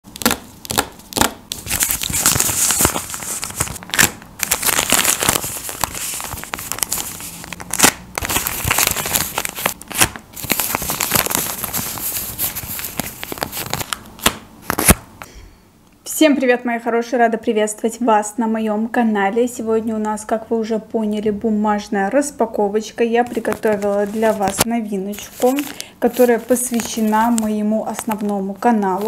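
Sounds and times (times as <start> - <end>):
paper rustling and crinkling: 0.2 - 15.0, 23.3 - 29.0.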